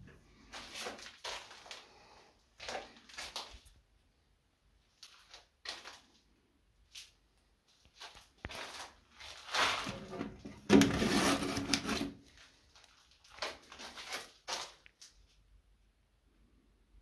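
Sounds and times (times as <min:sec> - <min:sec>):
plastic sleeve rustling: 0:07.9 - 0:15.4.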